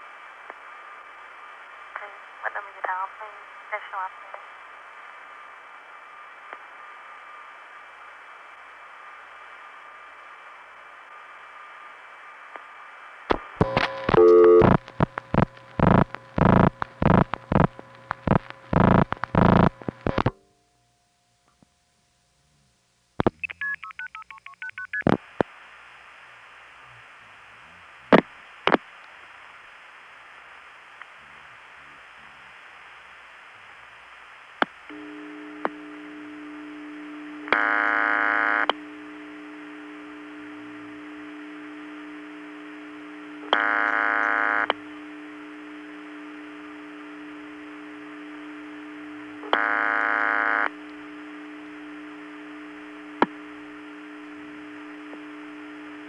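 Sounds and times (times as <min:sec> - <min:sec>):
steady line hum: 0:00.0 - 0:23.4, 0:25.2 - 0:56.0
telephone line hiss: 0:13.4 - 0:20.3, 0:34.9 - 0:56.0.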